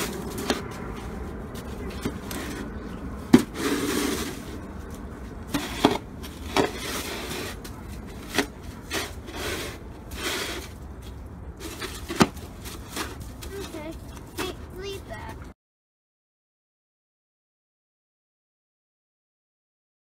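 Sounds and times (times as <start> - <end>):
snow shovel scraping slush: 3.5 - 4.6, 5.5 - 7.6, 8.3 - 10.8.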